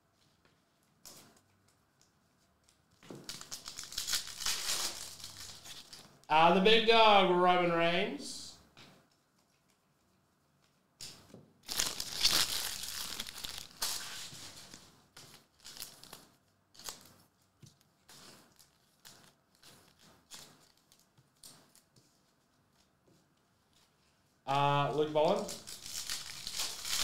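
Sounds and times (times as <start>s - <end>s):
foil wrappers crinkling: 3.2s - 6.2s, 11.6s - 22.4s, 25.2s - 27.0s.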